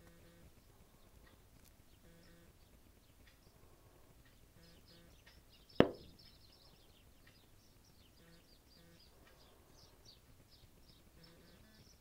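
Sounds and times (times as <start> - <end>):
small birds chirping: 0.0 - 12.0
sharp knock: 5.8 - 6.2.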